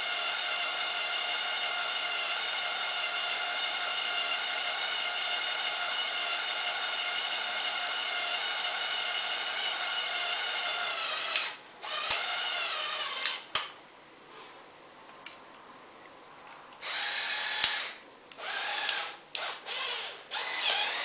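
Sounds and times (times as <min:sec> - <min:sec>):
small electric motor whining: 0:16.8 - 0:21.0.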